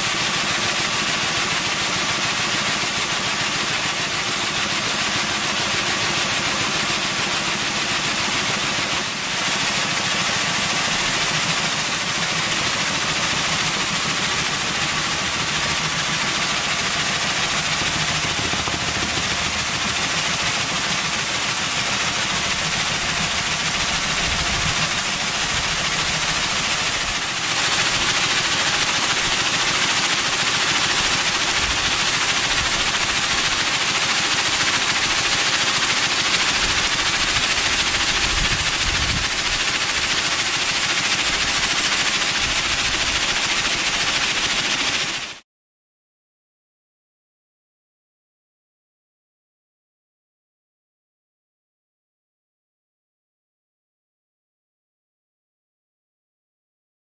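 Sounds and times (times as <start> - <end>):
motor hum: 0.0 - 45.3
pressure washer spray hissing: 0.1 - 45.4.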